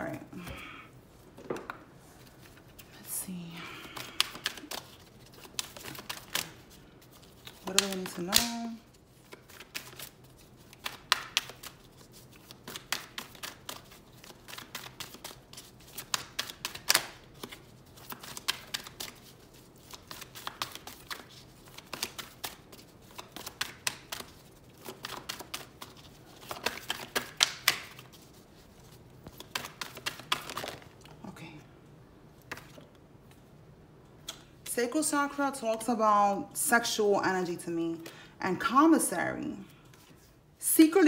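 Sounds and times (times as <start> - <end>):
cards being shuffled: 3.9 - 31.1, 32.4 - 33.4.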